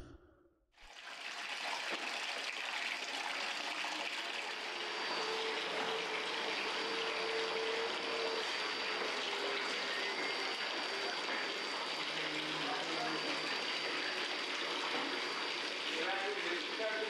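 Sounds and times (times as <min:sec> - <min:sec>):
water pouring into steel bowl: 0:00.8 - 0:07.6.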